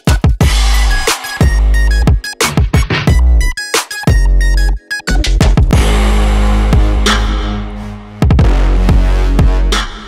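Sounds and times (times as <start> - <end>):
electronic music with deep bass: 0.0 - 10.0
hits falling in pitch: 5.8 - 10.0.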